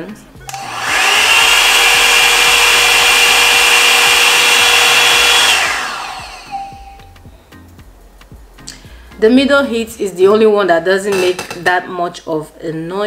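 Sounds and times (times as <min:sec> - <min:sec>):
hair dryer fan whining: 0:00.4 - 0:07.4.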